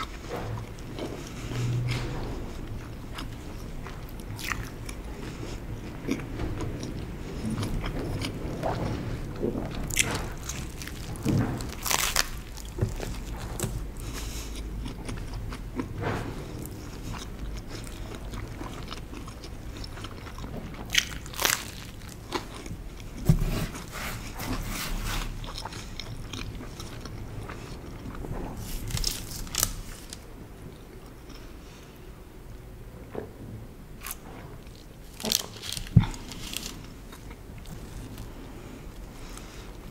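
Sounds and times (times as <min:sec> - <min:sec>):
wet chewing: 0:00.0 - 0:30.2, 0:34.0 - 0:39.9
crunchy bites: 0:09.8 - 0:15.4, 0:19.1 - 0:23.4, 0:35.0 - 0:38.3.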